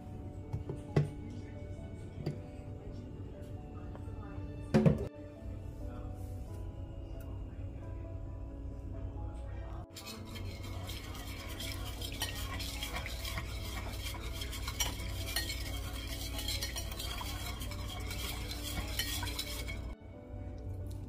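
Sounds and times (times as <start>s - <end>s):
wire whisk scraping ceramic dish: 9.9s - 20.0s.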